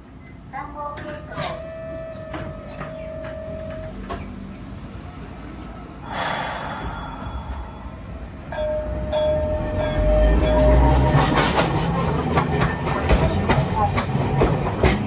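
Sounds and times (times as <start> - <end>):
compressed air hissing: 6.0 - 8.0.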